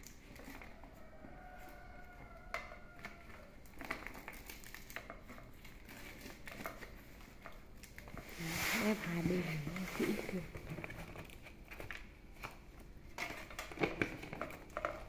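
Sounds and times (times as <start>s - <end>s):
leaves crinkling and rustling: 8.2s - 10.5s.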